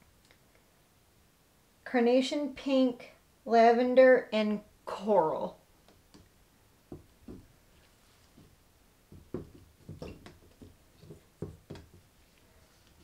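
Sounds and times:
plastic cups knocking on table: 6.9s - 7.5s, 9.1s - 12.1s.

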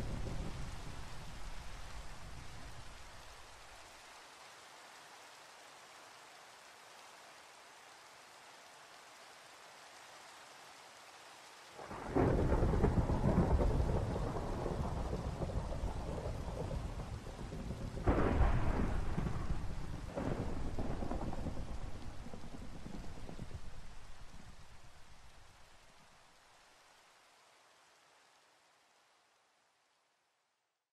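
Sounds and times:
thunder rolling: 0.0s - 2.9s, 11.8s - 25.1s
faint steady rain: 0.0s - 30.9s.

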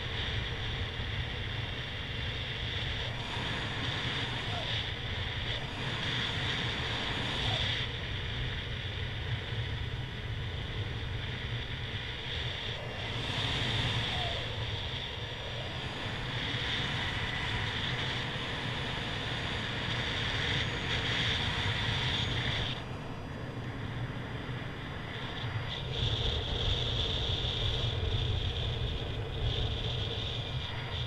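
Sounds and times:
wind rushing on microphone: 0.0s - 31.0s.

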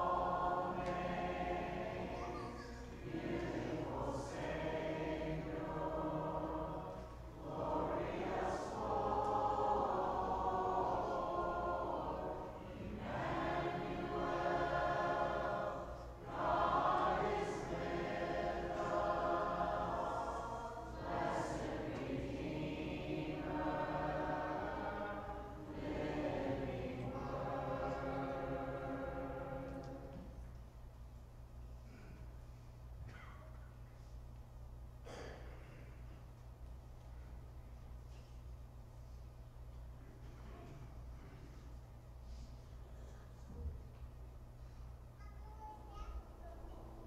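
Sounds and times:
congregation singing a hymn: 0.0s - 30.7s.

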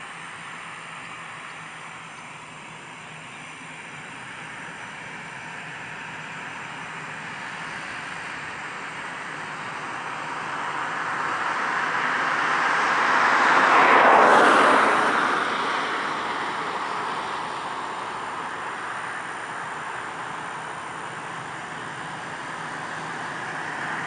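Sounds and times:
jet engine taxiing: 0.0s - 24.0s.

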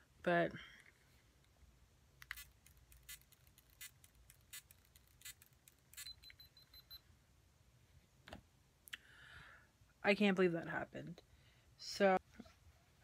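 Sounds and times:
faint high beeping: 6.0s - 7.1s.

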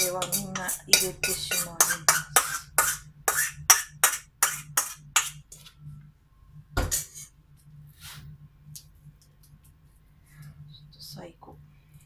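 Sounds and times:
scraping inside steel bowl: 0.0s - 5.4s.

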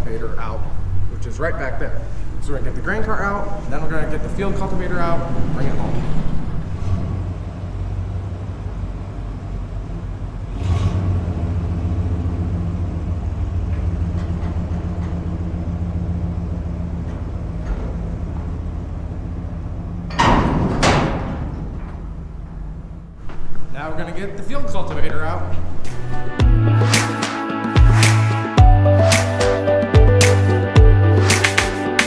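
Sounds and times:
pickup truck engine running: 6.5s - 20.3s
loud clattering knocks: 20.0s - 22.8s.

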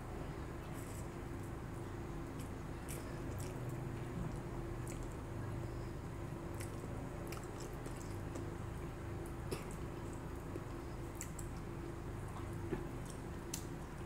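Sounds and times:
person chewing: 2.3s - 5.2s, 6.5s - 8.5s.

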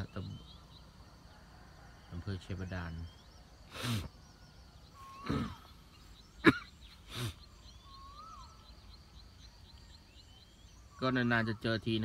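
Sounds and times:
faint high chirping: 0.0s - 12.0s
whistled bird calls: 2.9s - 12.0s
short breaths near microphone: 3.6s - 4.2s, 7.0s - 7.6s.

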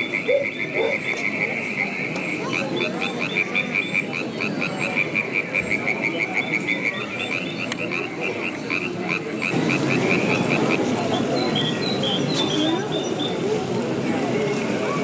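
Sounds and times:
frog croaking: 0.0s - 11.3s
crowd chatter: 0.0s - 15.0s.

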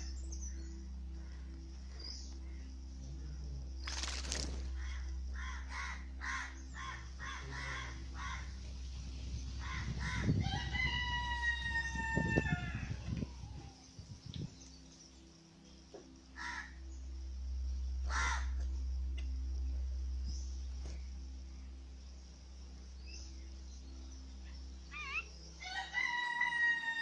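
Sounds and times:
low rumble: 0.0s - 25.6s
rooster crowing: 9.9s - 13.3s, 25.6s - 27.0s.

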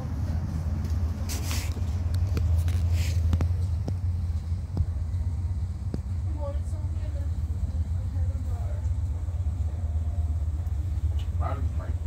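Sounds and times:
traffic rumble: 0.0s - 12.0s
brief rustling hisses: 1.3s - 1.8s, 2.8s - 3.3s.

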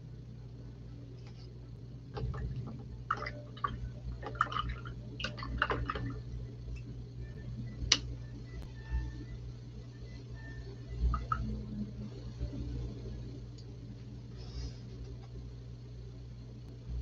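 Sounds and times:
paintbrush splashing in water cup: 2.2s - 6.2s.

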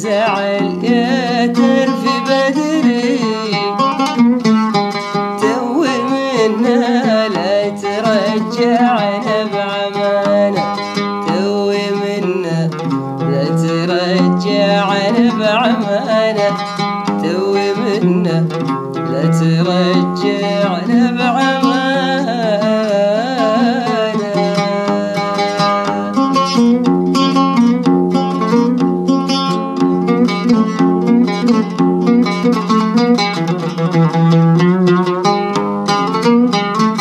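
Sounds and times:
person singing ornamented melody: 0.0s - 27.3s
plucked strings: 0.0s - 37.0s.

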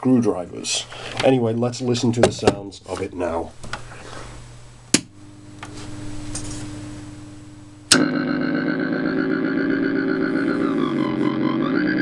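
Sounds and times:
amplifier hiss and hum: 0.0s - 12.0s
electronic drone of stacked tones: 7.9s - 12.0s.

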